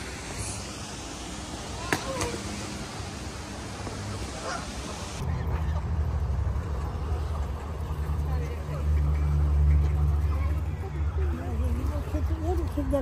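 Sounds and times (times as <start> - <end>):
geese honking: 4.2 - 5.8.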